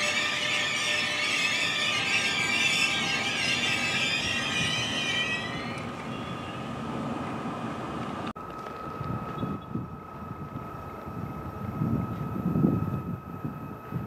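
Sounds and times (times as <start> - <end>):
locomotive whining tones: 0.0 - 8.3
train wheels on rails: 0.0 - 14.0.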